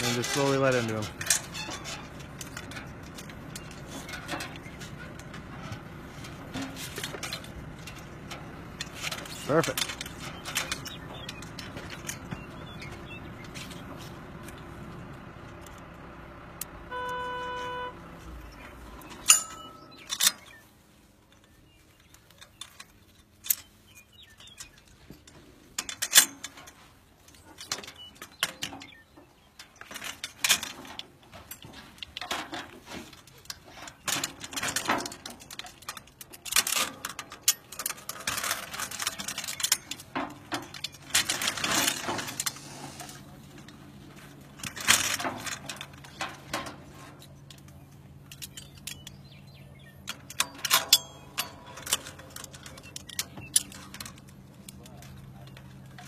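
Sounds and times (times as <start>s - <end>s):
metal clanks and rattles: 0.0s - 56.0s
single beep: 16.9s - 18.0s.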